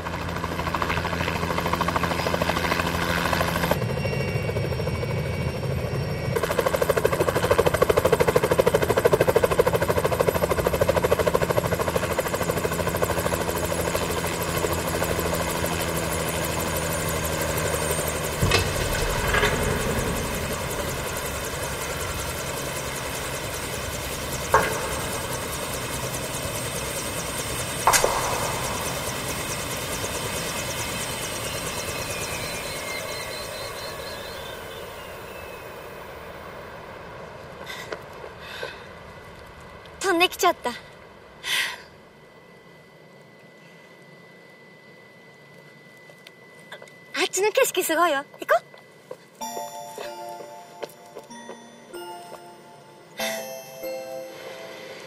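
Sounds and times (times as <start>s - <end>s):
helicopter turbine and rotors: 0.0s - 55.0s
sharp knocks: 27.9s - 29.4s.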